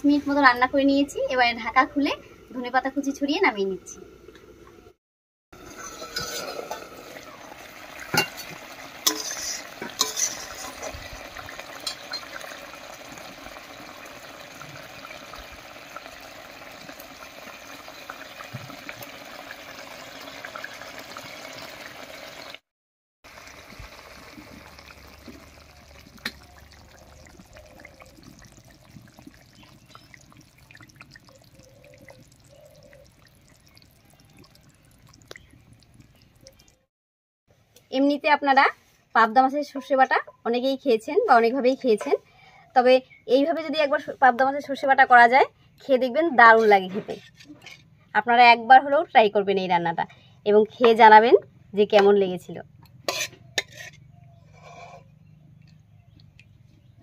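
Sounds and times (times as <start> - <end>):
curry bubbling and sizzling: 5.6 - 22.6, 23.3 - 36.9, 52.7 - 56.7.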